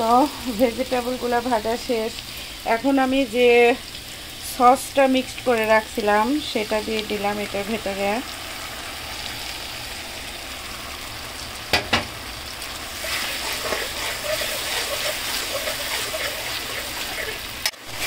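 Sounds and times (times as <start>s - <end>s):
vegetables sizzling in a metal pan: 0.0s - 18.0s
metal spatula scraping pan: 12.9s - 18.0s.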